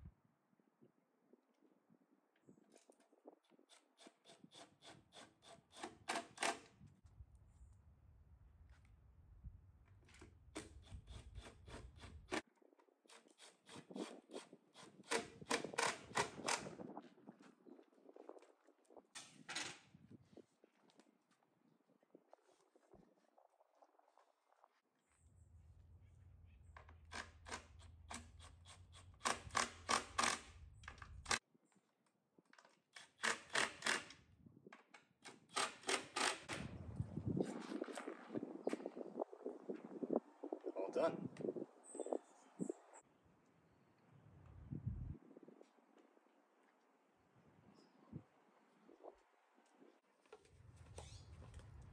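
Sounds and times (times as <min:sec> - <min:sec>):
drill driving screws clicking: 0:27.0 - 0:31.4, 0:35.2 - 0:36.6.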